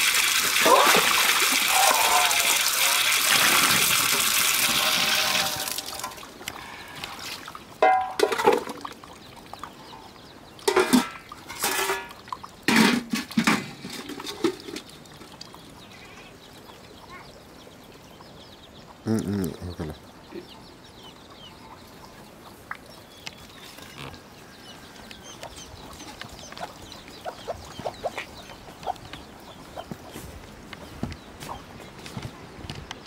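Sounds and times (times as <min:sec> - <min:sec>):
steel plates clattering: 0:07.8 - 0:08.7, 0:10.7 - 0:14.9.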